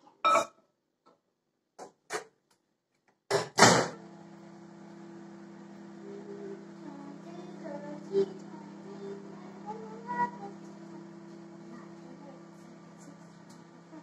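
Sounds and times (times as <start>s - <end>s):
microwave door clunking shut: 3.4s - 4.0s
microwave oven humming: 3.6s - 14.0s.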